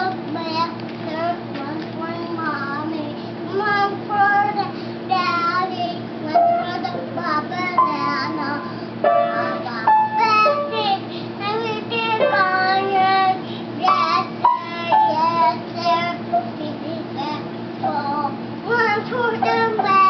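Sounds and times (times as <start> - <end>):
child singing: 0.0 - 20.0
piano notes: 6.3 - 11.1, 11.8 - 13.2, 14.4 - 15.4.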